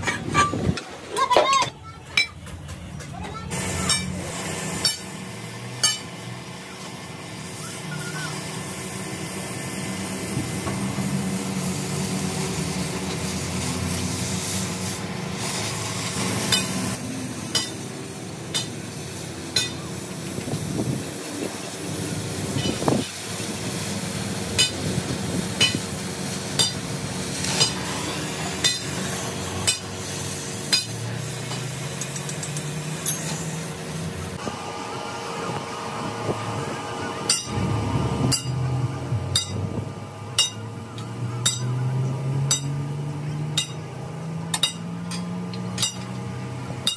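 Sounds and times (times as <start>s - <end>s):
rasping metalworking hiss: 3.5s - 34.4s
sharp metallic knocks: 39.3s - 39.6s, 40.4s - 40.7s, 41.4s - 41.8s, 42.5s - 42.8s, 43.6s - 43.8s.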